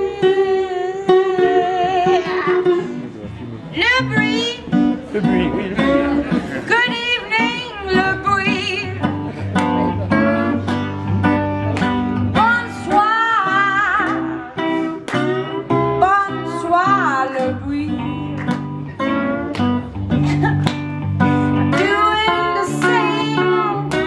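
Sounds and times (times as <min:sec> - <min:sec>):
woman singing blues: 0:00.0 - 0:03.0, 0:03.7 - 0:24.0
cigar box guitar plucked notes: 0:00.0 - 0:24.0.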